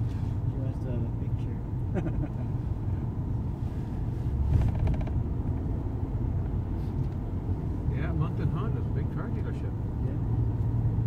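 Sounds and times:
car road rumble from cabin: 0.0 - 11.0.

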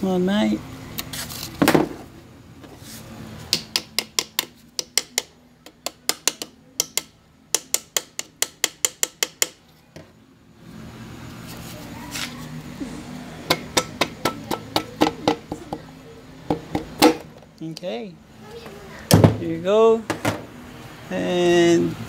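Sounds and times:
hammer tapping piston: 3.5 - 9.6.

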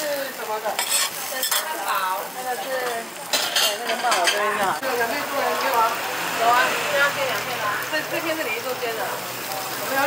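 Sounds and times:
food sizzling: 0.0 - 10.0
metal spatula scraping griddle: 0.7 - 1.8, 2.4 - 4.7.

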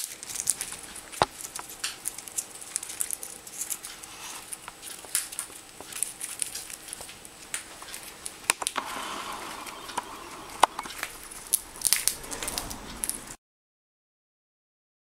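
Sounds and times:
parrot beak cracking peanut shell: 0.0 - 8.8.

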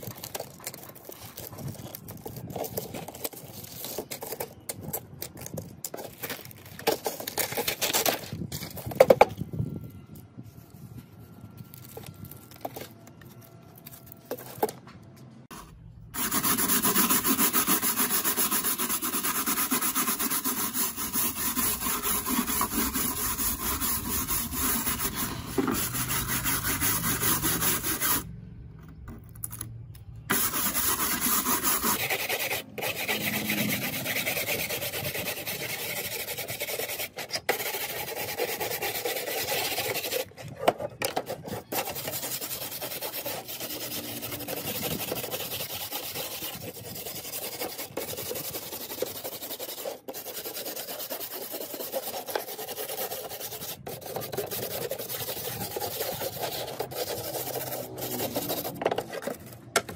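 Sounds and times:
abrasive rubbing: 30.3 - 36.1.

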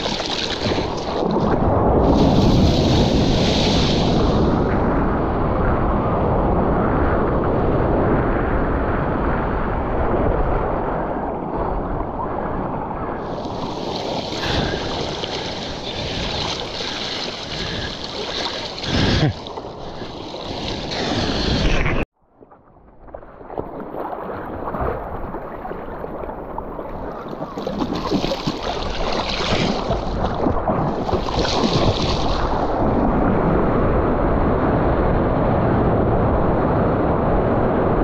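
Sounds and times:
waves breaking: 0.0 - 4.7, 11.6 - 22.1, 23.1 - 33.3.

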